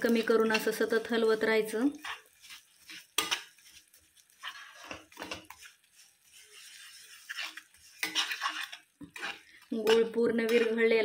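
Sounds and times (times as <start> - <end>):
spatula scraping pan: 0.0 - 11.0.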